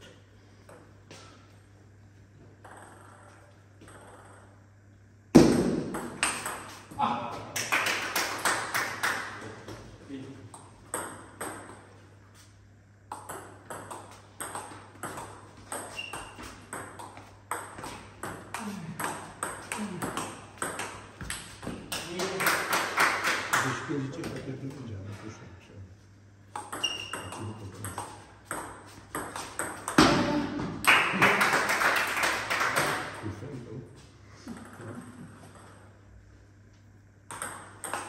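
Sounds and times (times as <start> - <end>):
ping pong ball clicking: 6.0 - 6.7, 13.1 - 18.4, 37.3 - 38.0.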